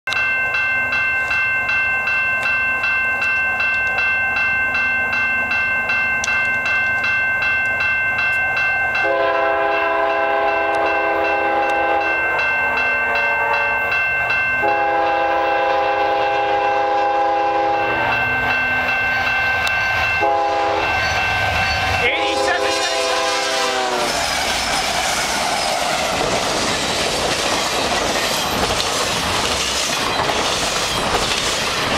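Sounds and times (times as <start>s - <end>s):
level-crossing warning bell: 0.1s - 24.2s, 25.4s - 31.9s
locomotive air horn blasts: 9.0s - 12.2s, 13.1s - 13.9s, 14.6s - 18.2s, 20.2s - 21.0s, 22.1s - 24.2s.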